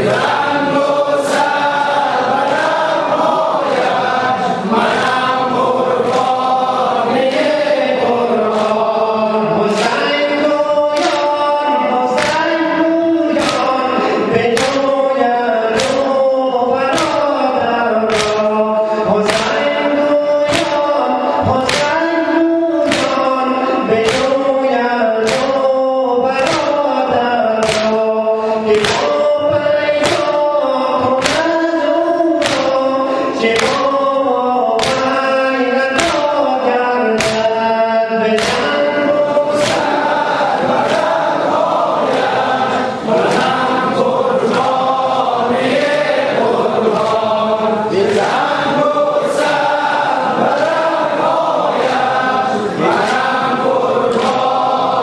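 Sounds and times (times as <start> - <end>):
men singing a lament in unison: 0.0 - 55.0
rhythmic chest-beating hand slaps: 0.0 - 55.0.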